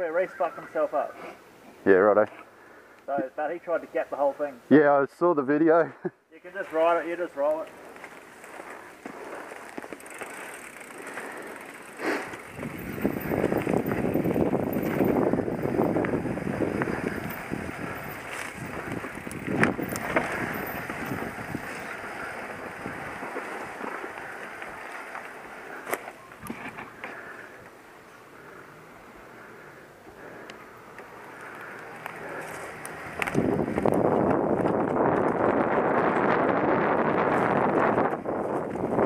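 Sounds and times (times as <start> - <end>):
bike tyres rushing on dirt: 6.5 - 27.6, 28.3 - 39.0
bike rattle: 6.7 - 27.6, 31.1 - 39.0.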